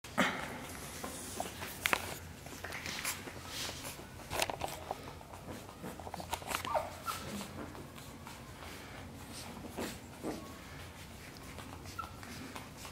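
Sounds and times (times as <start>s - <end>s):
paws clicking on tiles: 1.0s - 12.9s
puppy whimper: 5.6s - 12.9s.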